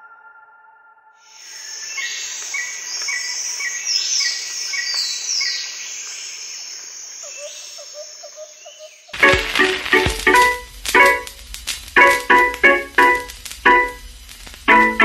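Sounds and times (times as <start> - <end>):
high insect drone: 1.3 - 15.0
birds calling: 1.4 - 11.2.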